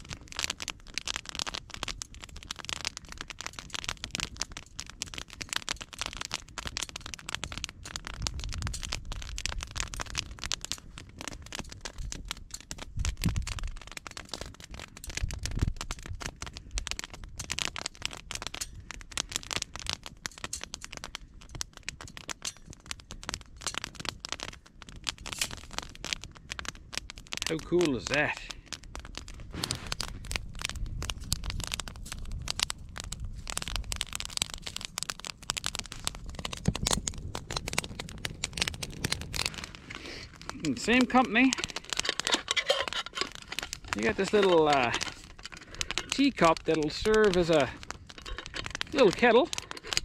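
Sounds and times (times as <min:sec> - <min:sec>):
metal grill clicking and rattling: 0:40.8 - 0:50.0.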